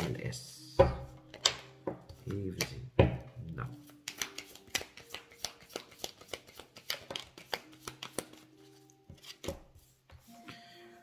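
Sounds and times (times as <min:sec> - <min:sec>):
cards shuffled by hand: 0:03.8 - 0:09.8.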